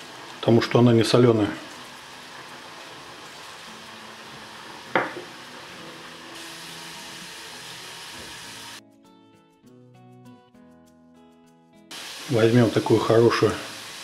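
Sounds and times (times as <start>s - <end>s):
potatoes sizzling in hot oil: 0.0s - 8.8s, 11.9s - 14.0s
soft background music: 3.0s - 13.6s.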